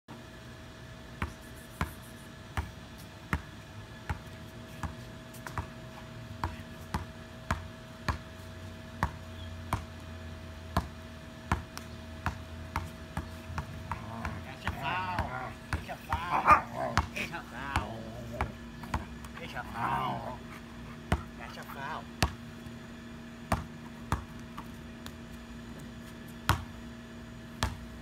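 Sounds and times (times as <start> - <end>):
basketball bouncing on concrete: 2.5 - 5.8, 6.4 - 10.0, 10.7 - 20.4, 21.0 - 22.5, 23.4 - 25.2, 26.4 - 26.8, 27.5 - 28.0.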